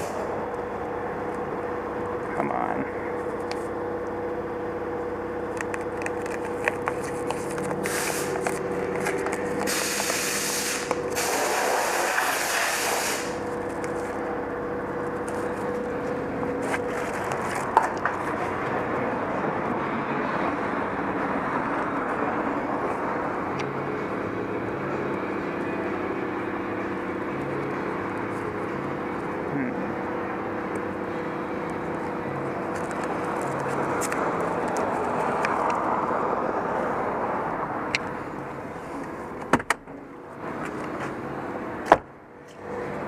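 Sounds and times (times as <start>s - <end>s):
steady outdoor hum: 0.0s - 43.0s
handling clicks and rubbing: 5.5s - 10.2s, 32.0s - 35.8s
spray hiss: 9.7s - 13.4s.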